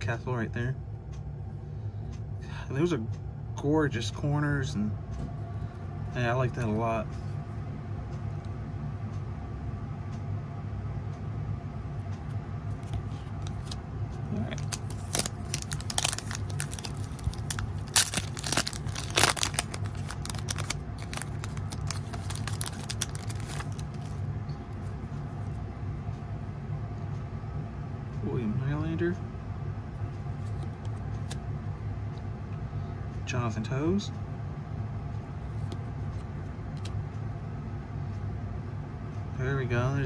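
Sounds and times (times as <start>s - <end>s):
steady low hum: 0.0s - 40.0s
foil wrapper tearing and crinkling: 14.5s - 24.1s.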